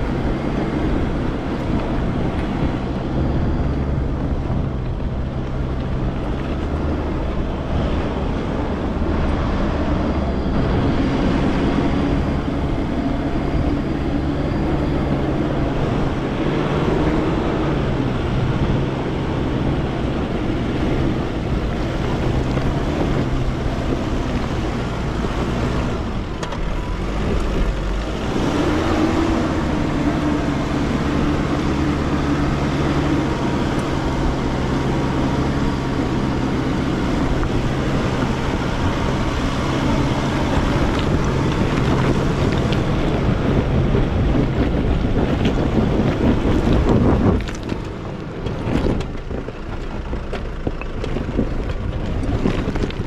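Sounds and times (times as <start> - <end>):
car engine running: 0.0 - 53.0
low rumble: 0.0 - 53.0.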